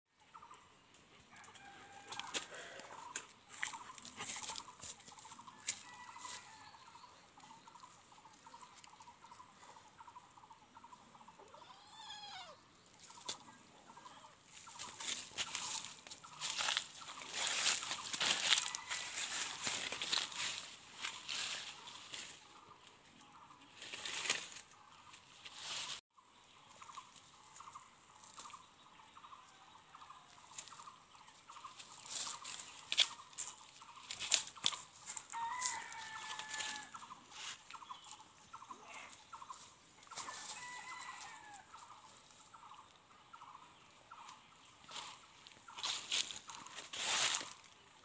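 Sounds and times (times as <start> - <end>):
footsteps on dry leaves: 1.6 - 7.0, 14.5 - 22.6, 23.8 - 26.0, 31.5 - 38.2, 39.5 - 42.5, 44.8 - 48.0.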